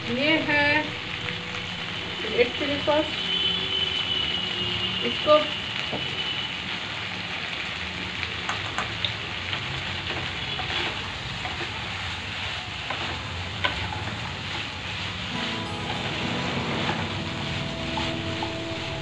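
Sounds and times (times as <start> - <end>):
food sizzling in a wok: 0.0 - 19.0
spatula stirring food: 9.4 - 19.0.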